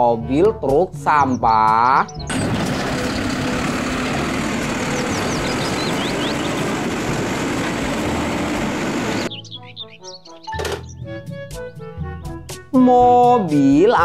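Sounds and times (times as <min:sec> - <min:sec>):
garbage truck running: 0:02.3 - 0:09.3
hydraulic arm lifting cart: 0:02.3 - 0:09.3.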